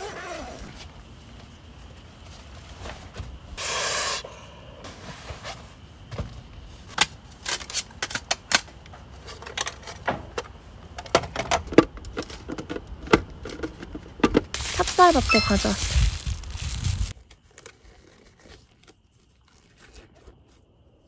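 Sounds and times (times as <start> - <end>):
packaging rustling: 14.6 - 17.1.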